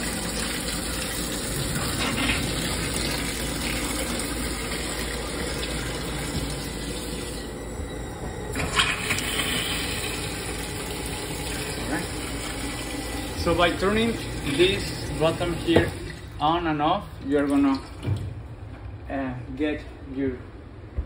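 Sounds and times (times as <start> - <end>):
tap water running into steel sink: 0.0 - 7.5, 8.5 - 16.4.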